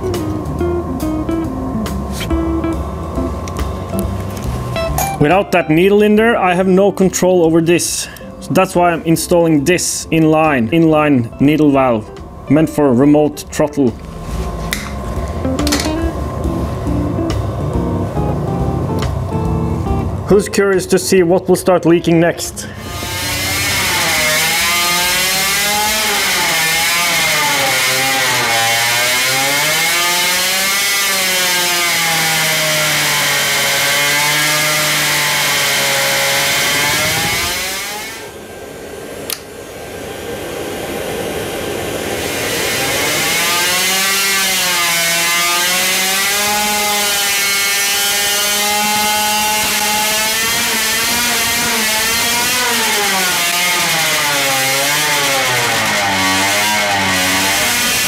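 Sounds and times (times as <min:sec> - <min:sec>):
two-stroke engine revving: 0:13.8 - 0:18.2, 0:22.5 - 0:38.5, 0:41.8 - 0:58.0.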